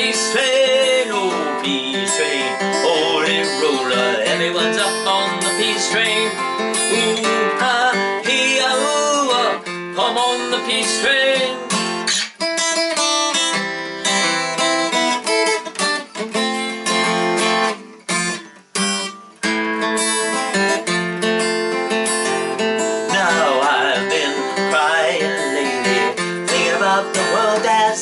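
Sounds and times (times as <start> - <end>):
person singing wordlessly: 0.0 - 12.0, 22.4 - 28.0
acoustic guitar strumming: 0.0 - 28.0.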